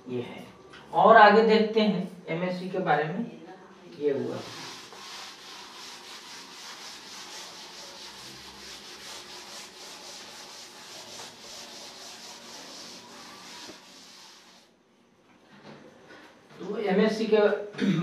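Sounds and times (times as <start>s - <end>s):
duster rubbing chalk off blackboard: 4.2s - 14.7s.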